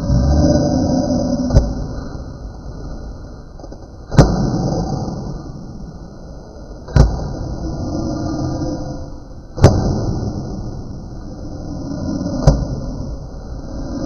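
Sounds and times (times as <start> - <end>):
sharp crack: 3.6 - 5.4, 6.9 - 7.6, 9.6 - 10.8.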